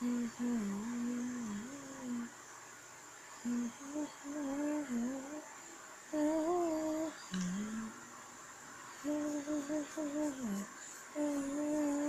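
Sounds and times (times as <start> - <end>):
person humming: 0.0 - 2.3, 3.4 - 5.4, 6.2 - 8.0, 9.0 - 12.0.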